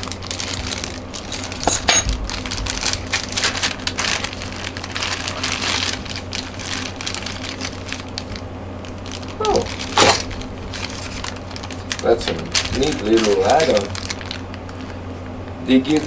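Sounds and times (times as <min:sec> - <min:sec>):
plastic bags crinkling: 0:00.0 - 0:16.0
screws and metal brackets clinking: 0:01.2 - 0:02.1.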